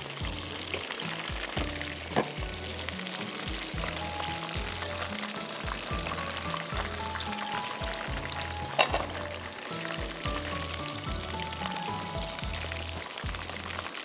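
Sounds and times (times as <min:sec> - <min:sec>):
chicken deep-frying in oil: 0:00.0 - 0:14.0
soft background music: 0:00.0 - 0:14.0.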